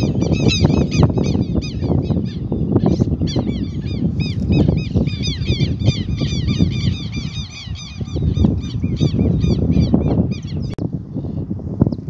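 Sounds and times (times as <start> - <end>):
flock of birds chirping: 0.0 - 12.0.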